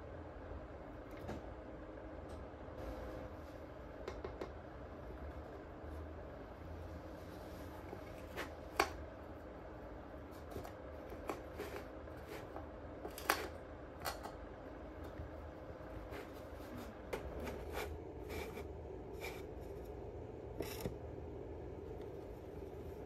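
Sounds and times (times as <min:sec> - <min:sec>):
scratching and rubbing on wood: 0:16.0 - 0:20.0.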